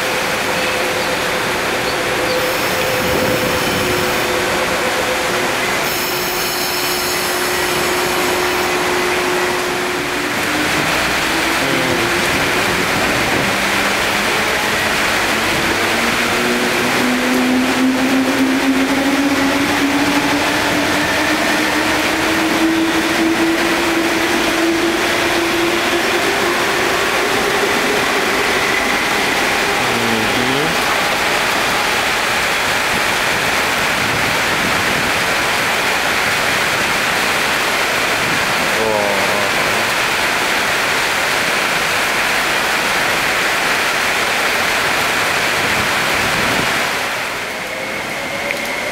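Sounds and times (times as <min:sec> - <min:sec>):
heavy rain: 0:00.0 - 0:48.9
train motor whine: 0:00.1 - 0:34.9.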